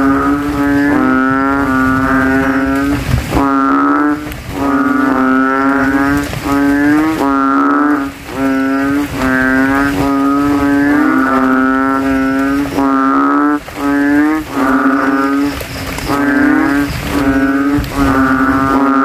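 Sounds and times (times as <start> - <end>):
frogs calling in chorus: 0.0 - 19.0.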